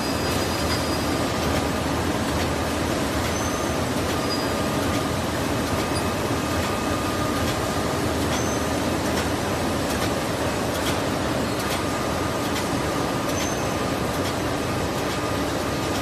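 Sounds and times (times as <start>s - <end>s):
packing machine mechanical din: 0.0s - 16.0s.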